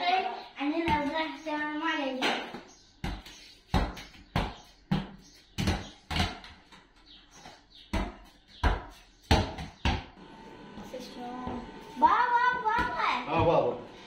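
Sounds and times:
ball bouncing: 0.7s - 1.3s, 2.2s - 6.9s, 7.9s - 10.2s, 12.5s - 13.7s.

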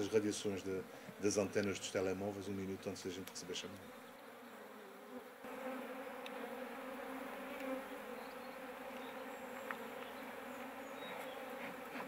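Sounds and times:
bees buzzing: 0.0s - 12.0s
faint ticks: 6.2s - 6.4s.

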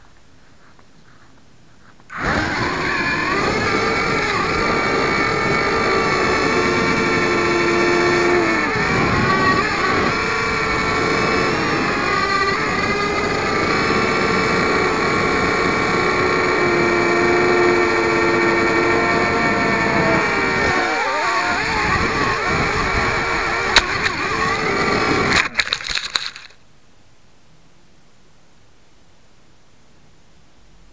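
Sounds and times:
quadcopter motors whining: 2.1s - 26.5s.

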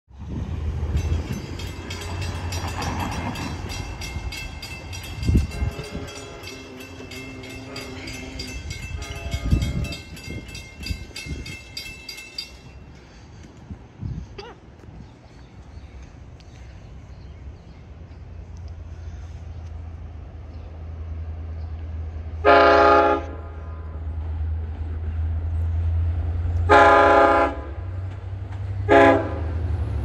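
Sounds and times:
crossing warning bell ringing: 0.7s - 13.4s
distant train horn: 5.0s - 10.1s, 22.4s - 24.0s, 26.6s - 28.0s, 28.8s - 29.7s.

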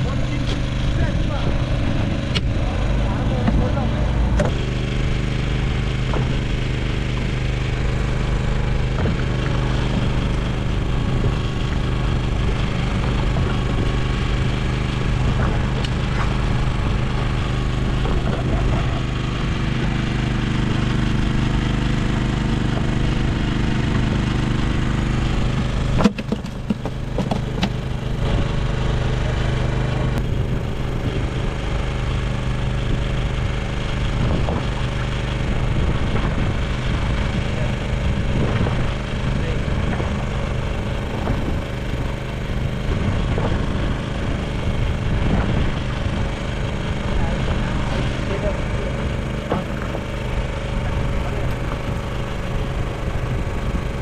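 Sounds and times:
small boat engine drone: 0.0s - 54.0s.

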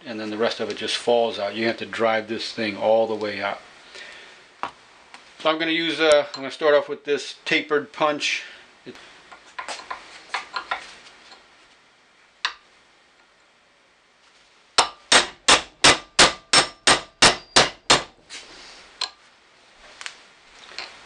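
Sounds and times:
hammer striking metal punch: 14.8s - 18.1s.

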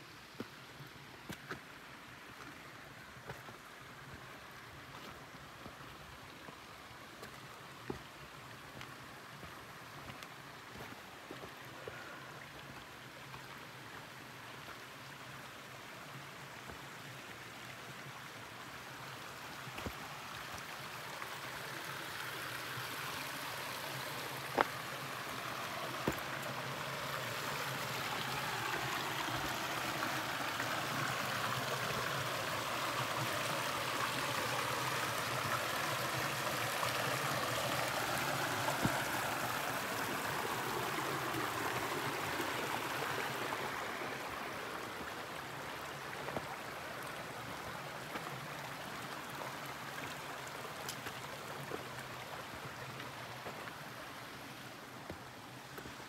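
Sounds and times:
stream water rushing: 0.0s - 56.0s.

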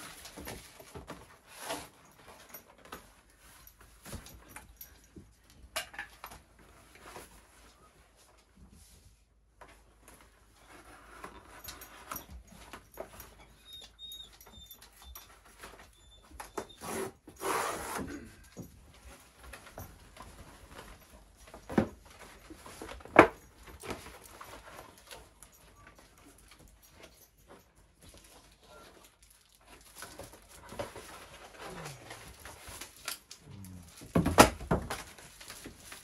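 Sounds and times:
paper and plastic packaging rustling: 0.0s - 4.8s, 18.9s - 36.0s.

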